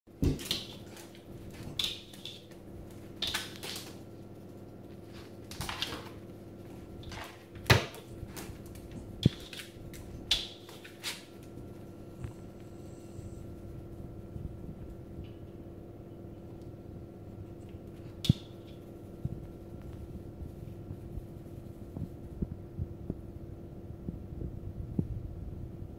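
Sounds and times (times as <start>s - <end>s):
puppy claws scratching glass door: 0.3s - 4.0s, 7.0s - 11.4s.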